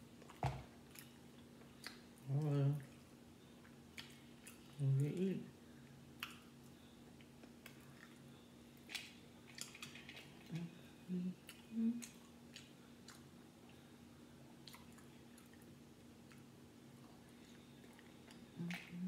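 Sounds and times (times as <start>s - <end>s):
faint steady hum: 0.0s - 19.0s
chewing: 0.2s - 2.2s, 2.8s - 5.2s, 7.2s - 13.9s, 14.6s - 19.0s.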